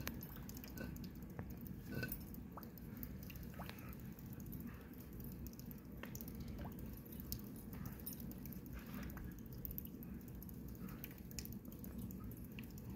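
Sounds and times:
low steady rumble: 0.0 - 12.9.

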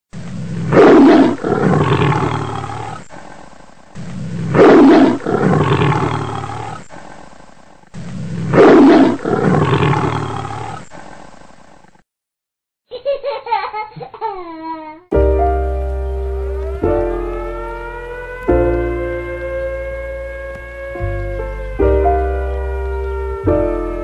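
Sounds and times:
big cat roaring: 0.4 - 3.0, 4.2 - 6.8, 8.2 - 10.9.

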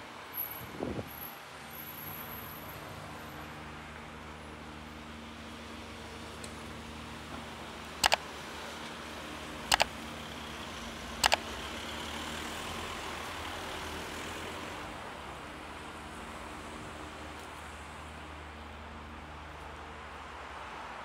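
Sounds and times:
street traffic engine hum: 0.0 - 21.0
sharp double clicks: 8.0 - 8.2, 9.7 - 9.9, 11.2 - 11.4.

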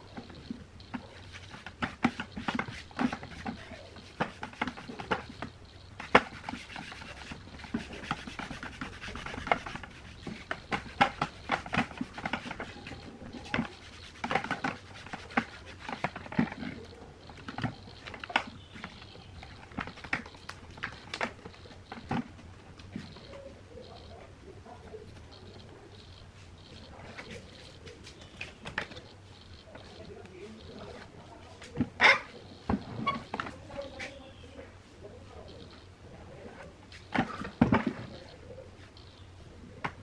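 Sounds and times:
cloth rubbing on covering sheet: 6.3 - 11.0.

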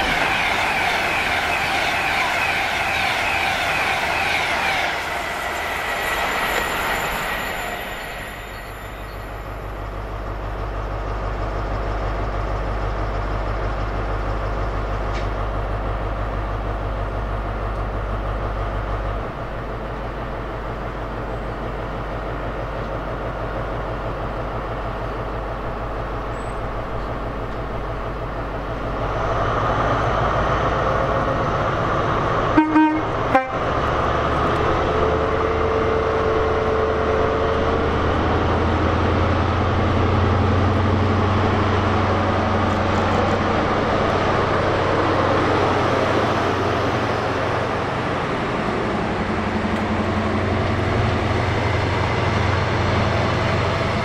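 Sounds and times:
diesel locomotive engine drone: 0.0 - 54.0
two-tone train horn: 32.5 - 33.7.

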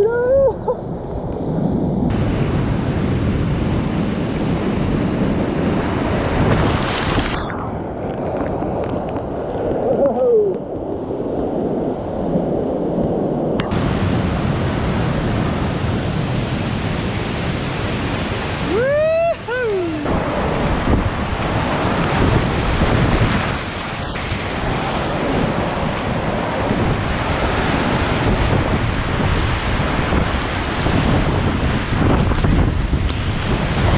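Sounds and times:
person whooping: 0.0 - 0.8, 9.9 - 10.6, 18.7 - 20.1
wind buffeting microphone: 0.0 - 33.9
river rushing through rapids: 13.7 - 33.9.

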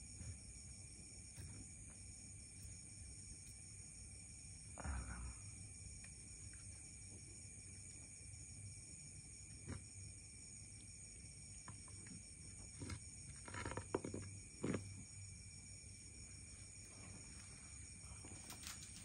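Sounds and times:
rustling: 17.0 - 19.0.

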